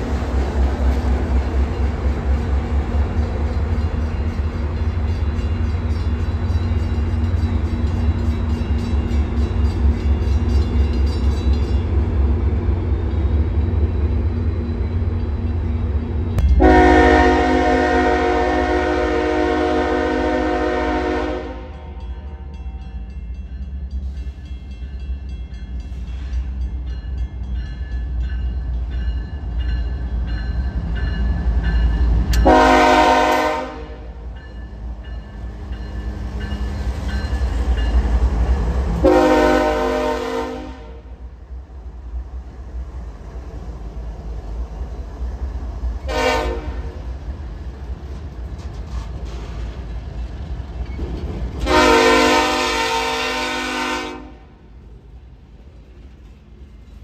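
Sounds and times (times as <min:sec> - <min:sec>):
train rumble: 0:00.0 - 0:57.0
train horn blasts: 0:16.4 - 0:22.0, 0:32.4 - 0:34.2, 0:39.0 - 0:41.2, 0:46.0 - 0:47.0, 0:51.6 - 0:54.6.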